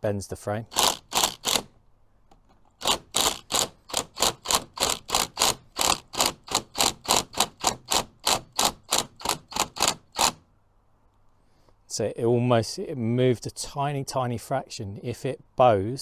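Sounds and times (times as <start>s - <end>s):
impact driver driving screw: 0.7s - 1.7s, 2.8s - 10.4s.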